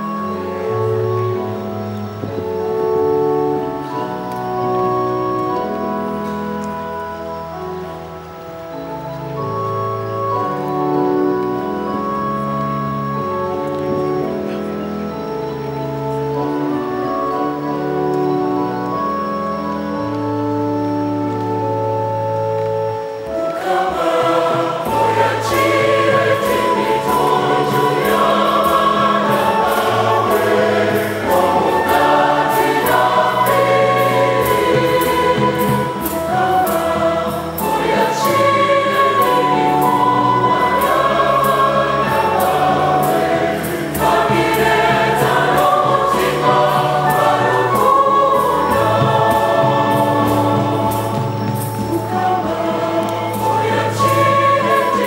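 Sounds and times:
choir singing a hymn: 0:00.0 - 0:55.0
flute: 0:00.0 - 0:55.0.

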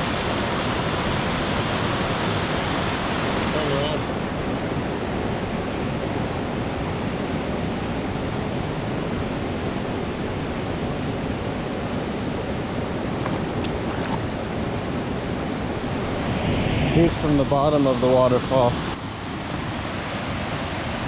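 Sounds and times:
waterfall rushing: 0:00.0 - 0:05.1.

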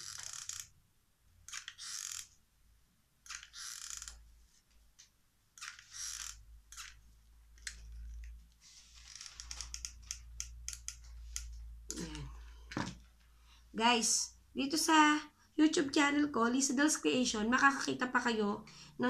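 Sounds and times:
small clicks: 0:01.5 - 0:02.3
glue gun trigger scratching: 0:01.5 - 0:02.4, 0:03.2 - 0:04.2, 0:05.6 - 0:07.0.

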